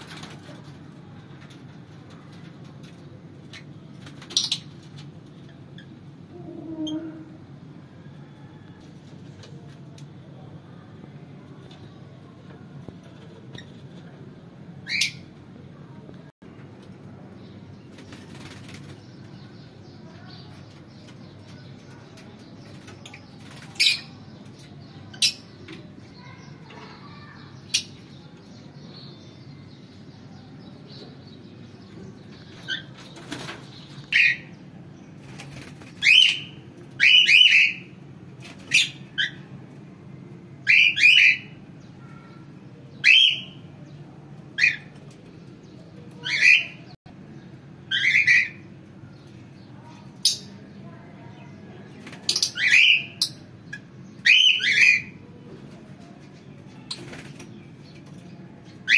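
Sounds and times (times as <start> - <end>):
parrots shrill calls: 47.9 - 48.6.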